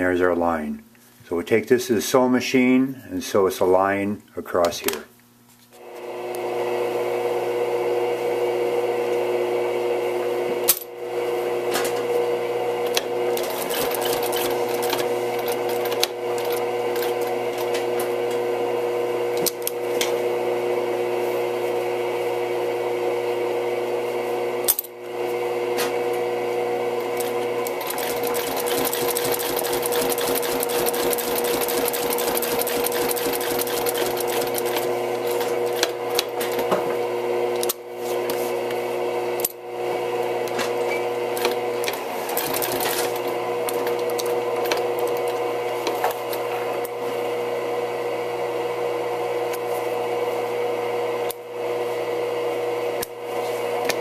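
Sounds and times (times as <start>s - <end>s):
sewing machine stitching: 12.8s - 17.8s, 27.1s - 36.7s, 41.3s - 45.4s.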